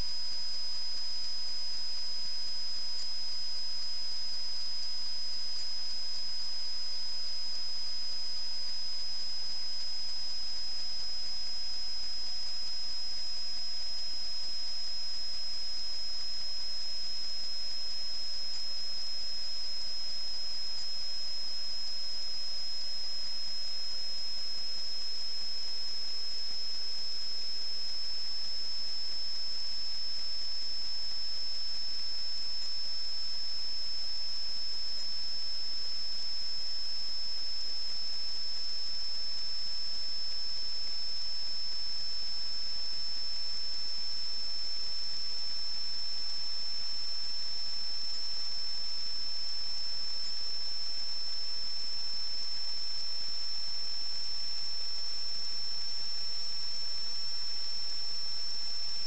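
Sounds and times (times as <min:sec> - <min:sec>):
high-pitched electronic whine: 0:00.0 - 0:59.0.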